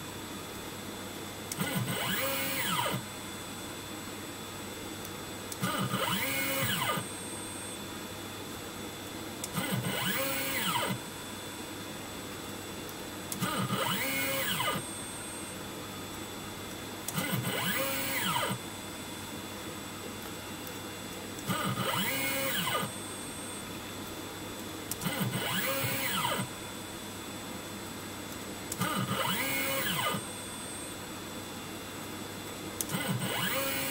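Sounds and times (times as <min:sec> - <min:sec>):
faint hum: 0:00.0 - 0:33.9
stepper motor whine: 0:01.5 - 0:03.1, 0:05.5 - 0:07.4, 0:09.4 - 0:11.1, 0:13.3 - 0:15.6, 0:17.1 - 0:18.6, 0:21.4 - 0:23.6, 0:25.0 - 0:26.6, 0:28.7 - 0:31.0, 0:32.8 - 0:33.9.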